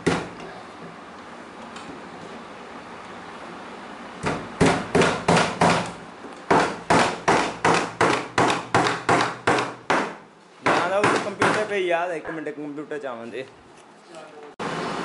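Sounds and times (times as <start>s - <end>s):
hammer driving nails into wood: 4.2s - 11.7s.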